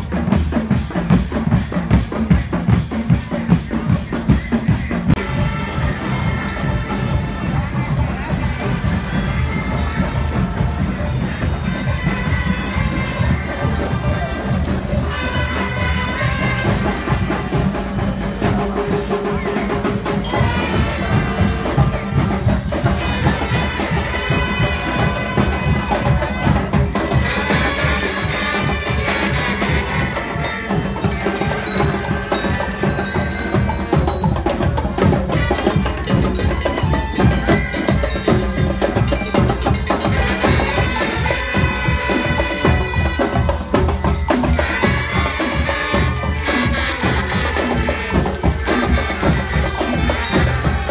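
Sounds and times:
drum beats: 0.0 - 50.9
marching band playing: 0.0 - 50.9
bell lyres ringing melody: 1.6 - 50.9.

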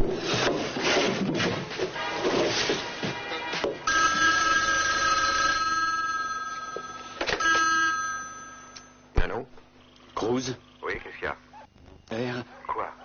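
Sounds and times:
telephone ringing two-tone: 3.9 - 9.1.

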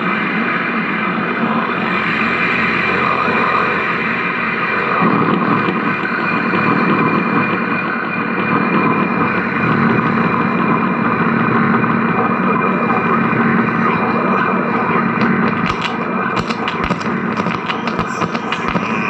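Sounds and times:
low drone: 0.0 - 19.0
harsh guitar amplifier noise: 8.9 - 19.0.

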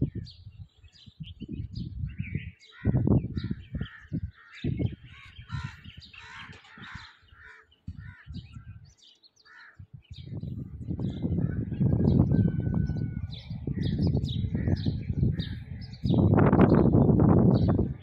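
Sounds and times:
wind rumble on microphone: 0.0 - 9.1, 9.8 - 18.0
birds chirping: 0.0 - 18.0
crows cawing: 2.7 - 8.4, 9.4 - 9.8.

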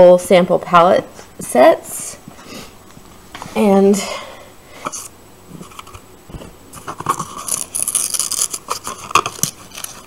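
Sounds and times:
paper wrapping being torn open: 6.8 - 10.0.

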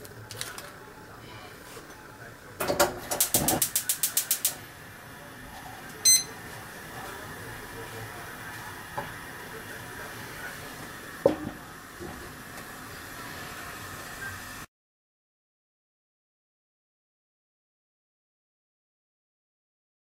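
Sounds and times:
water heating in frying pan: 3.2 - 5.2, 6.3 - 14.7
kitchen timer beep: 6.0 - 6.4.

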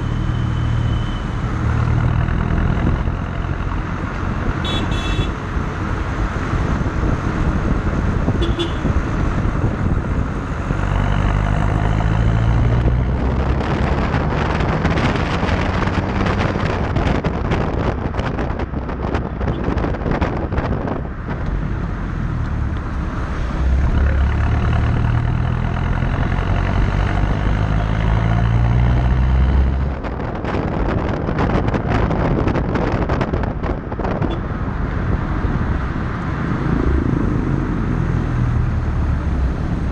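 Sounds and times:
tyre and road noise: 0.0 - 39.9
car horn toots: 4.6 - 5.4, 8.4 - 8.9
wind buffeting microphone: 5.4 - 39.9.

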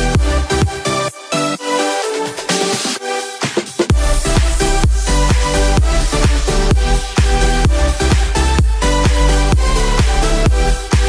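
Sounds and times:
electronic dance music synths: 0.0 - 11.0.

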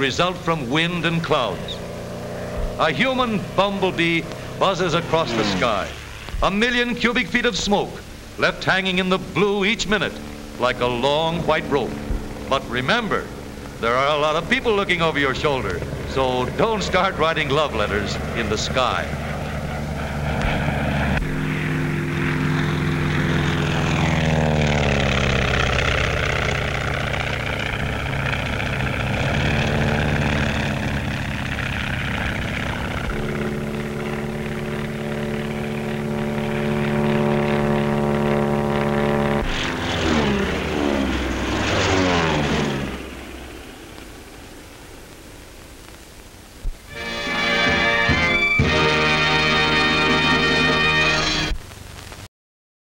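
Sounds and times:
propeller plane engines droning: 0.0 - 51.8.

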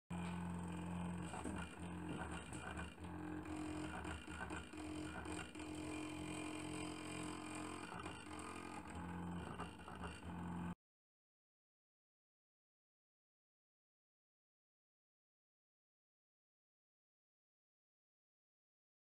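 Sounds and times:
stepper motors humming: 0.1 - 10.8.

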